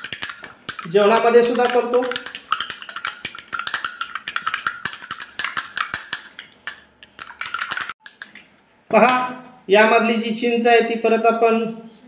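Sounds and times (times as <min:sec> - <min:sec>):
glass rod clinking in beaker: 0:00.0 - 0:08.3.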